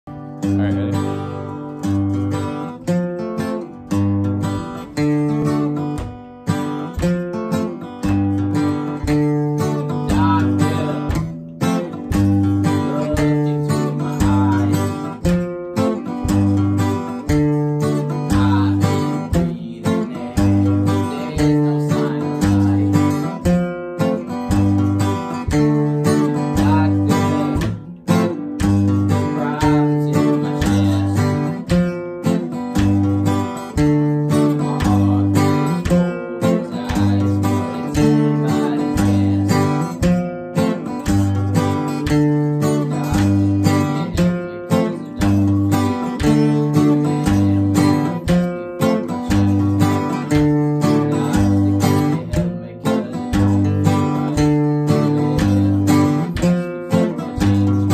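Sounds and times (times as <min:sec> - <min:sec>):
acoustic guitars strumming: 0:00.0 - 0:57.9.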